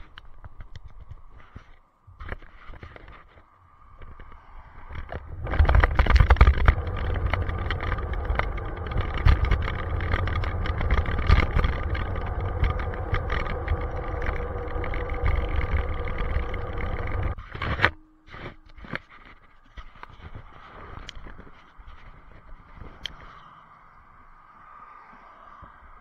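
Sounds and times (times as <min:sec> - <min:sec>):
wind buffeting camera: 0:00.0 - 0:18.0, 0:18.7 - 0:24.3
rough heavy rumble with knocks: 0:03.9 - 0:23.3.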